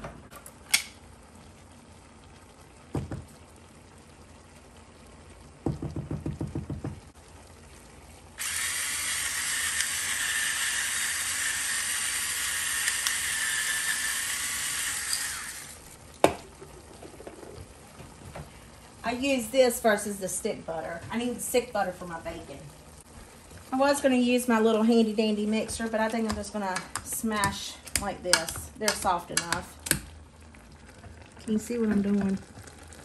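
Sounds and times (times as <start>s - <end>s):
electric pepper mill grinding: 8.4s - 15.8s.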